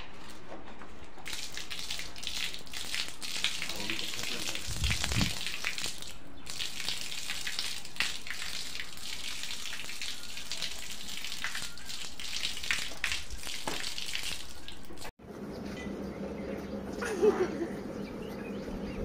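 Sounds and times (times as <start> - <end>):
urine stream splashing on floor: 1.2 - 15.1.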